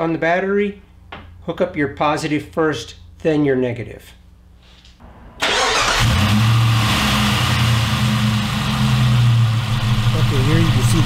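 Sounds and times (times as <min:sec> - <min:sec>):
car engine cranking and idling: 0:05.0 - 0:11.0.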